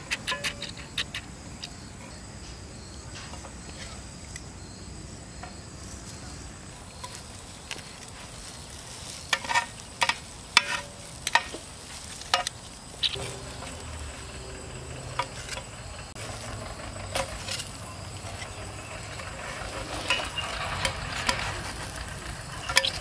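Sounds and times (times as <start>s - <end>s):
sandwiches sizzling in pan: 5.9s - 23.0s.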